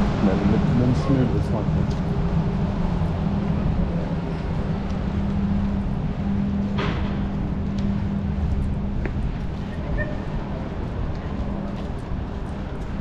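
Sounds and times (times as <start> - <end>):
motor vehicle running: 0.0 - 13.0.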